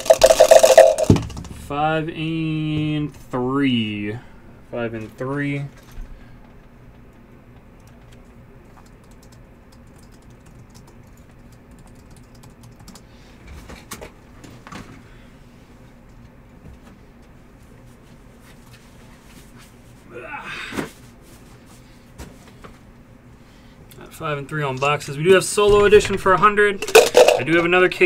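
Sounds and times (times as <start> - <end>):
computer keyboard typing: 7.8 - 13.0.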